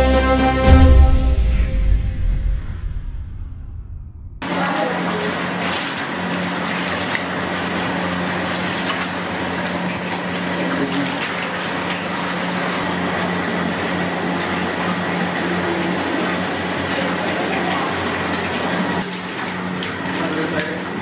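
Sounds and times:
low pump hum: 4.4s - 21.0s
running water: 4.4s - 21.0s.

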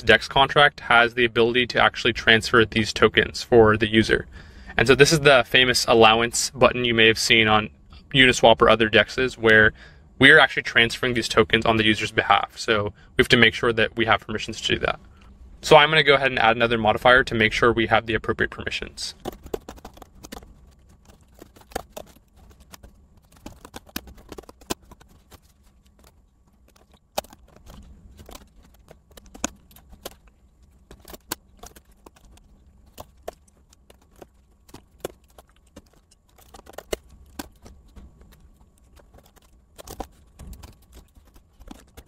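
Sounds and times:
computer keyboard typing: 19.1s - 42.0s.

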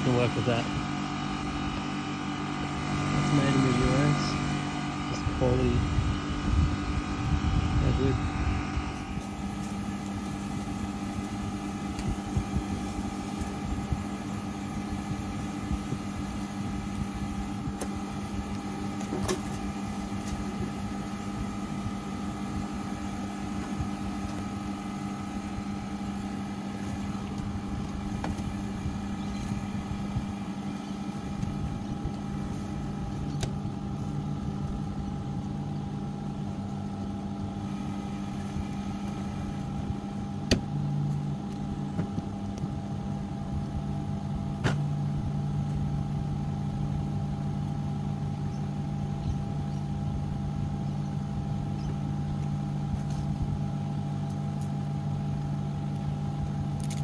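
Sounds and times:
air conditioner humming: 0.0s - 57.0s.

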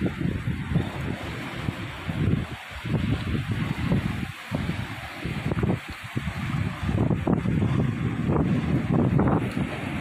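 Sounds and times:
surf on rocks: 0.0s - 10.0s
wind buffeting microphone: 0.0s - 10.0s.

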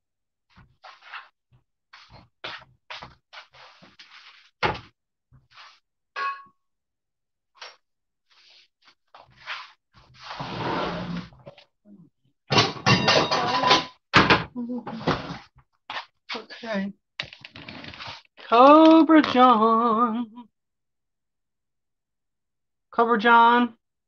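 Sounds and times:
cookware clicks and knocks: 12.5s - 14.5s.

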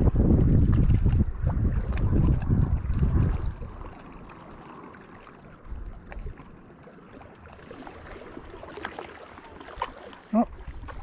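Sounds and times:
wind buffeting microphone: 0.0s - 4.7s
small waves lapping shoreline: 0.0s - 11.0s.

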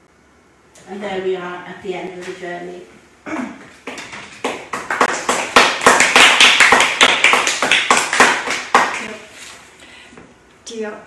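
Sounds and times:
audience applauding: 4.4s - 9.1s.

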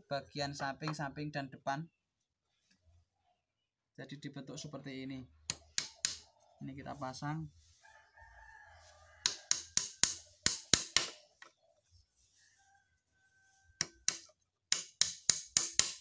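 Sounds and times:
hammer tapping nail into wood: 9.2s - 11.2s, 13.8s - 16.0s.

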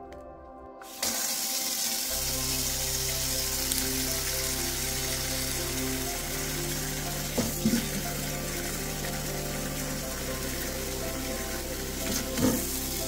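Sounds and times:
soft background music: 0.0s - 13.0s.

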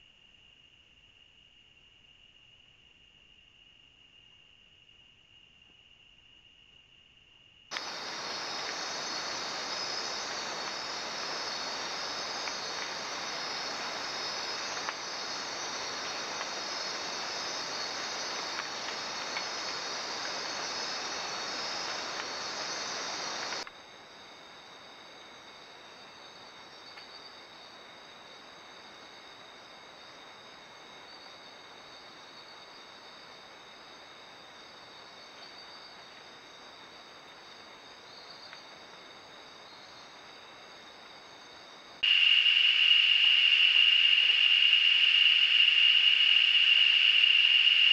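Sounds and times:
insects chirring at night: 0.0s - 47.9s
loud dense hiss: 7.7s - 23.7s.

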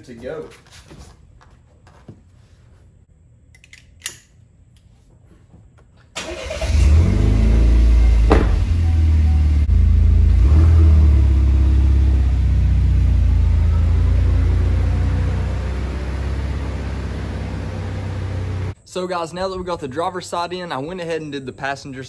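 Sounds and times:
car engine starting and running: 6.2s - 18.8s.

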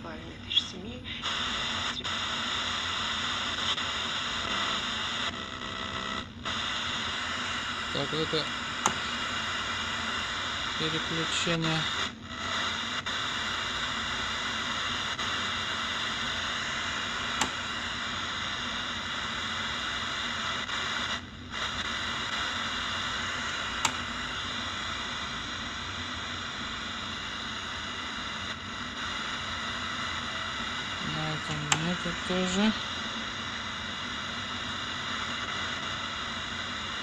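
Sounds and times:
radio static hiss: 0.0s - 37.0s.

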